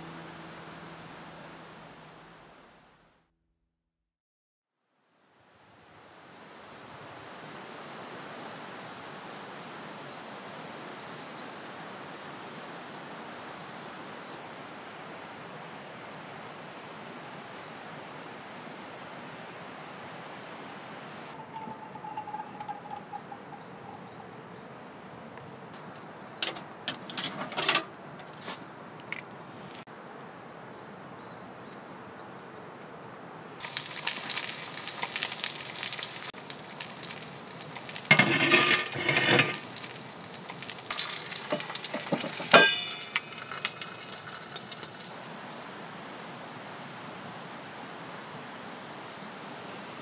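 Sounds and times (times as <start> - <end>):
metal clatter: 21.4 - 24.2, 26.4 - 27.9, 33.6 - 45.1
metal lid clanging on pan: 21.4 - 24.2, 38.0 - 40.0, 40.7 - 45.1
light metal clinks: 21.4 - 24.5, 36.8 - 45.1
food sizzling in frying pan: 33.6 - 45.1.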